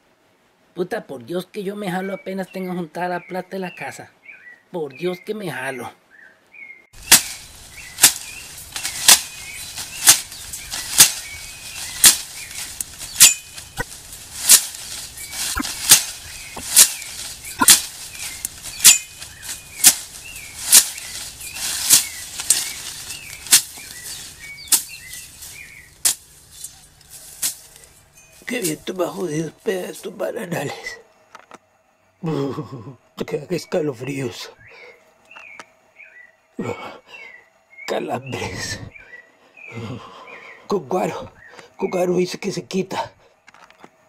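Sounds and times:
birds chirping faintly: 0.4 - 44.0
machete slashing through weeds: 7.0 - 28.0.

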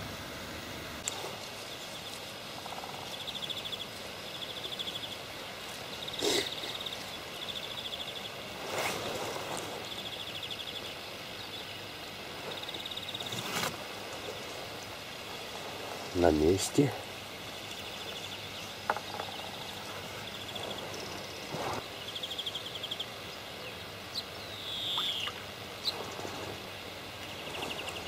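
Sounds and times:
outdoor hiss: 0.0 - 28.0
rustling noises: 1.0 - 4.2, 8.4 - 10.0, 12.3 - 17.1, 19.4 - 22.0, 25.9 - 28.0.

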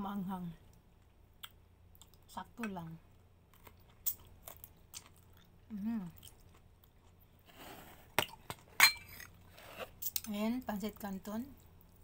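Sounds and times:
person chewing crunchily: 3.5 - 9.5.

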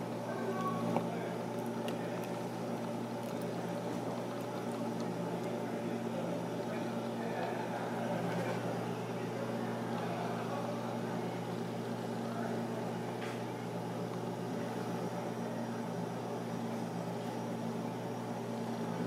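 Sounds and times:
low mechanical hum: 0.0 - 19.0
faint voices: 0.2 - 13.7.

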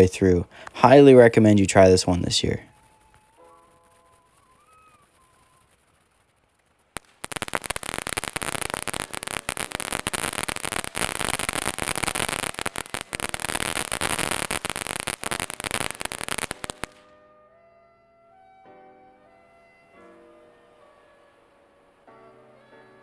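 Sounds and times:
fountain firework crackling and hissing: 0.0 - 17.0.

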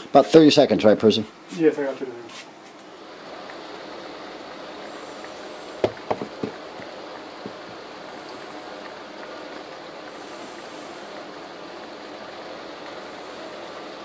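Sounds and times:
water spray hissing on window: 3.2 - 14.0.

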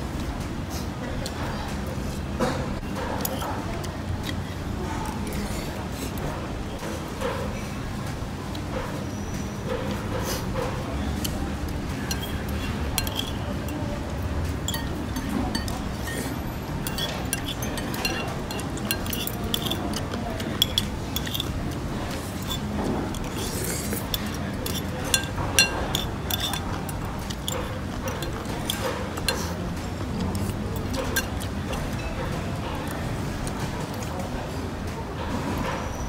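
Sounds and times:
cutlery clinking against ceramic bowl: 10.6 - 32.5.

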